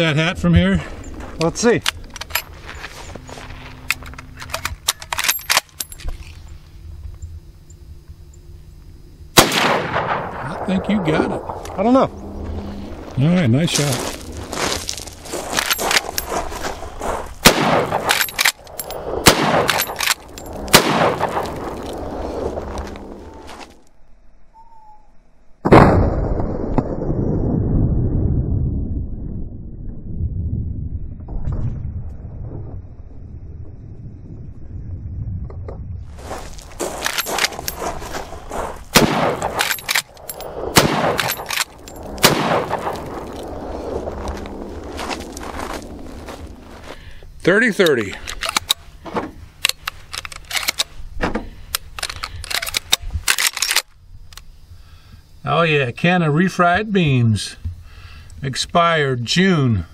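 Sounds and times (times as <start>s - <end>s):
rifle shots echoing: 9.4s - 12.0s, 17.4s - 22.2s, 38.9s - 43.9s
rifle lever clicks: 48.1s - 48.8s, 49.6s - 50.9s.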